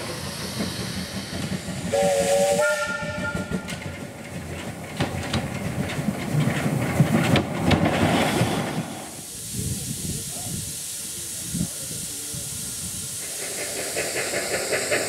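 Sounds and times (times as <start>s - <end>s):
steam exhaust: 0.0s - 3.9s, 8.3s - 15.0s
steam whistle: 1.9s - 3.6s.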